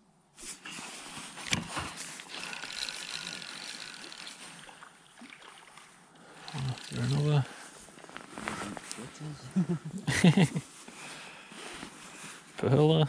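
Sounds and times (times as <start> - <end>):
fishing reel whirring: 1.4 - 4.9, 6.2 - 7.6
fishing reel click: 2.2 - 4.6, 6.4 - 7.3.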